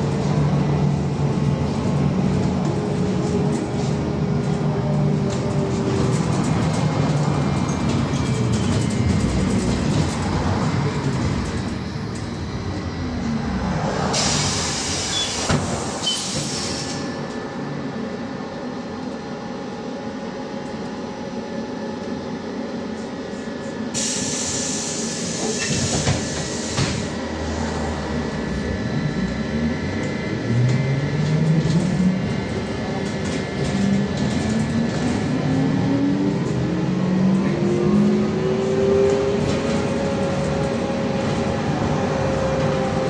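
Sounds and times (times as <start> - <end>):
road and body rumble: 0.0 - 19.1, 25.5 - 43.0.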